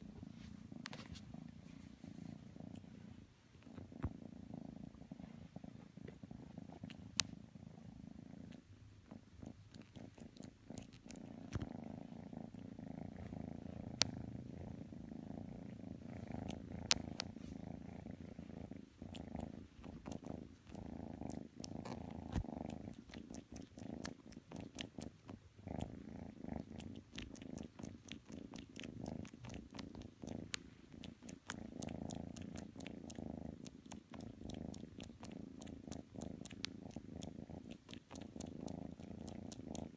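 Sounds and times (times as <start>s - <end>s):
kitten purring: 0.0s - 39.9s
faint sharp clicks: 6.8s - 7.4s.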